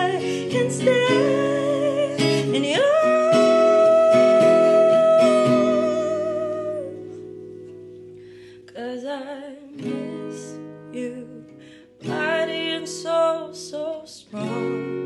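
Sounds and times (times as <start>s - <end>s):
woman singing: 0.0s - 7.3s, 8.6s - 15.0s
acoustic guitar strumming: 0.0s - 9.0s, 9.7s - 13.8s.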